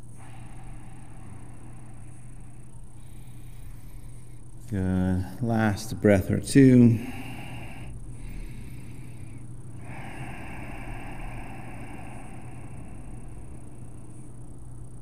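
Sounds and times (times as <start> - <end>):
deep breaths through nose: 0.0 - 4.5, 7.0 - 14.2
low hum: 0.0 - 15.0.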